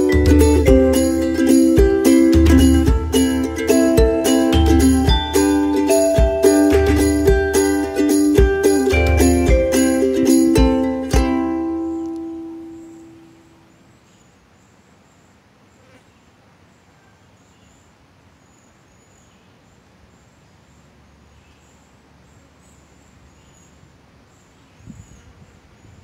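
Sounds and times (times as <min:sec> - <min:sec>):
ukulele note: 0:00.0 - 0:13.2
insects chirping: 0:00.0 - 0:26.0
low hiss: 0:00.0 - 0:26.0.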